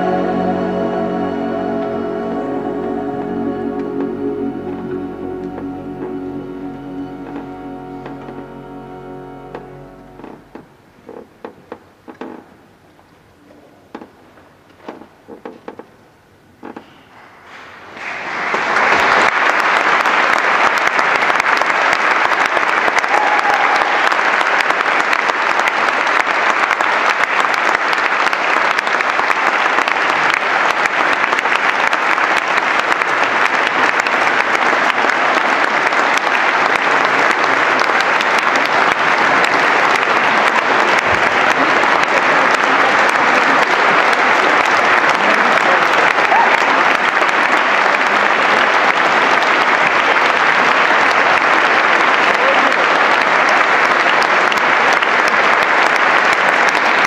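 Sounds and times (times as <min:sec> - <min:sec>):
audience applause: 0:17.8 - 0:57.0.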